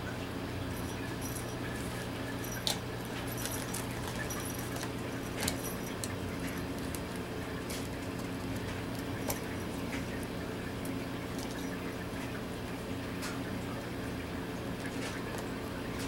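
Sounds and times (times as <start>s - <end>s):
steady low hum: 0.0s - 16.0s
faint jingling: 0.5s - 6.8s, 9.0s - 12.3s
puppy handling gift bag: 0.7s - 10.1s.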